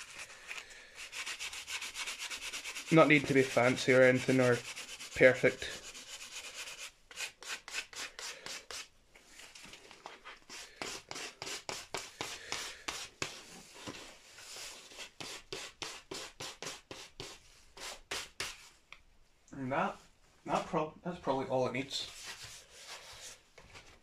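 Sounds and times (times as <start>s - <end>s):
sandpaper scratching on lacquer: 0.0s - 0.4s, 1.0s - 8.9s, 10.5s - 13.4s, 14.9s - 18.6s.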